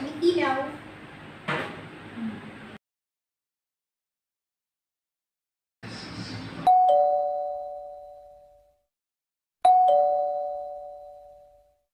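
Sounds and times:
two-tone doorbell chime: 6.7 - 8.8, 9.6 - 11.8.

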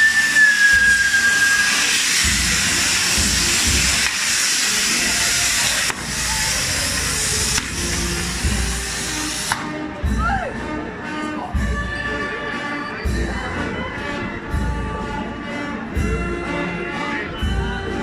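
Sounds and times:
high whistle: 0.0 - 6.9
fireworks hissing: 0.0 - 10.0.

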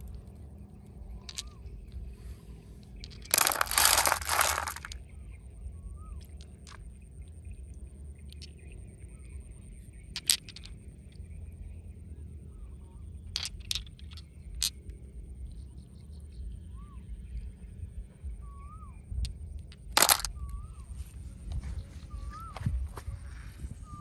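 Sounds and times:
stone clicking on stone: 1.1 - 2.1, 2.8 - 5.0, 10.1 - 10.8, 19.2 - 20.6
stones splashing in water: 3.1 - 5.0, 20.0 - 20.3.

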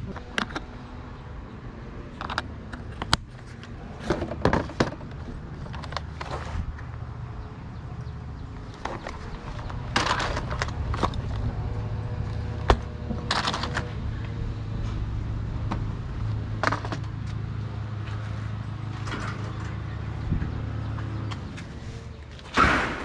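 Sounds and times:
steady low rumble: 0.0 - 23.0
plastic clatter and rustling: 2.2 - 6.8, 8.7 - 11.6, 12.3 - 14.0, 15.7 - 17.4, 18.9 - 20.5.

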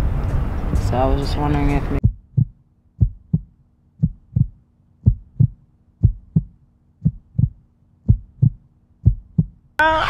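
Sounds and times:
heartbeat thumps: 2.0 - 9.6.

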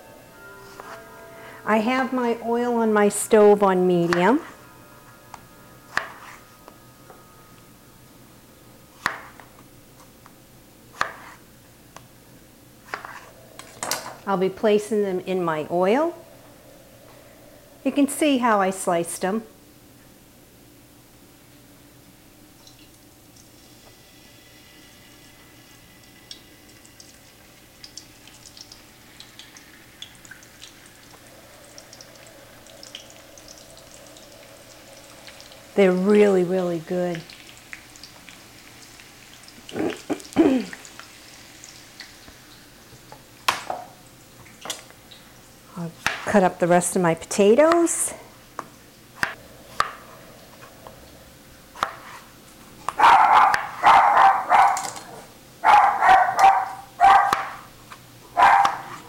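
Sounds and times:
potatoes frying in oil: 22.5 - 56.0
dog barking: 52.9 - 57.7, 58.3 - 59.0.

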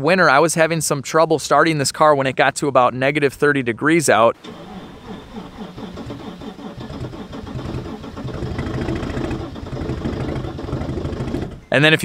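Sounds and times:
diesel engine cranking and running: 4.4 - 11.8.

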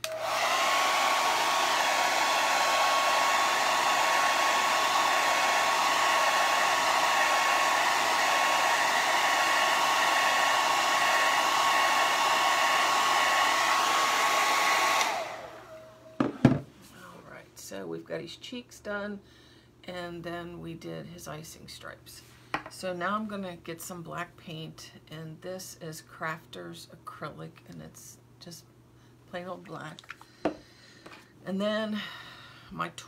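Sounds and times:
hair dryer running: 0.0 - 16.7.

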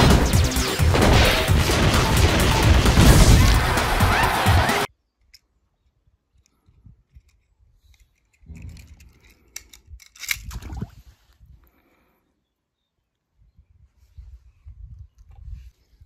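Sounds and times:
loud sound cutting off: 0.0 - 4.9.

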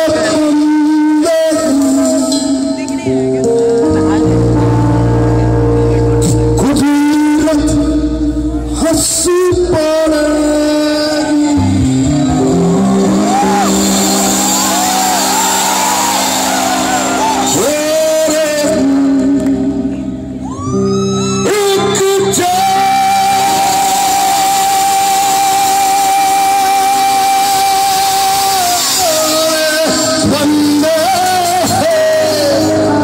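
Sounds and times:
live rock band: 0.0 - 33.0
person singing: 0.0 - 33.0.

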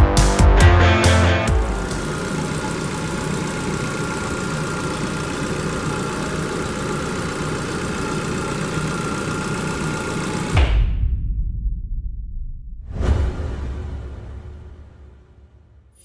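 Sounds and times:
car engine idling: 0.9 - 10.6.

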